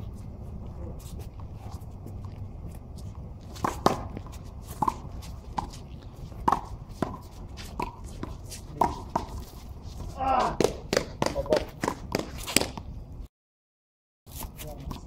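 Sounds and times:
steady low rumble: 0.0 - 12.2
handball bouncing off concrete: 3.5 - 9.4, 10.2 - 12.9.

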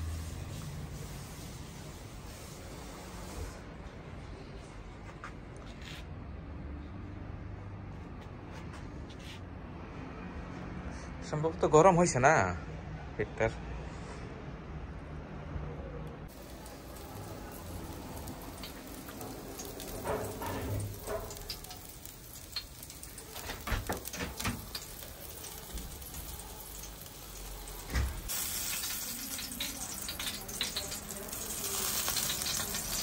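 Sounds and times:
chicken sizzling and crackling on grill: 0.0 - 3.6, 16.3 - 33.0.

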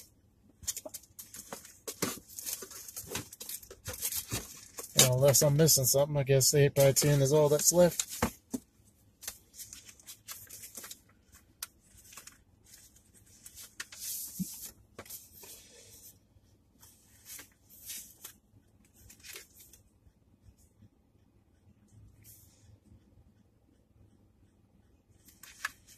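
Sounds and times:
paper and packaging rustling: 0.0 - 5.9, 6.6 - 8.6, 9.2 - 15.6.

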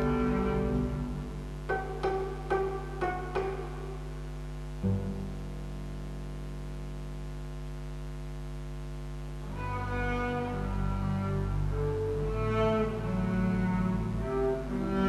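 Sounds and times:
bowed double bass note: 4.8 - 6.2.

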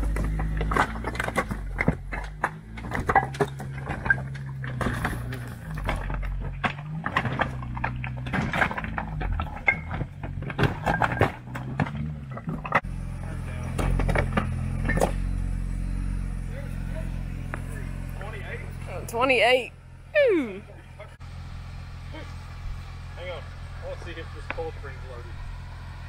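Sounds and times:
tyres crunching on stones: 0.0 - 18.9
engine revving at low revs: 0.0 - 26.0.

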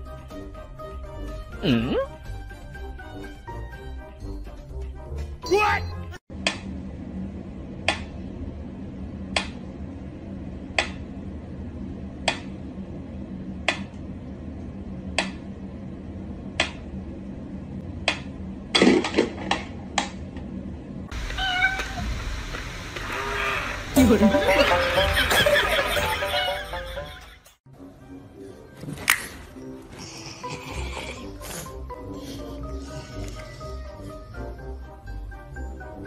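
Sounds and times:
cat crying: 21.2 - 22.1.

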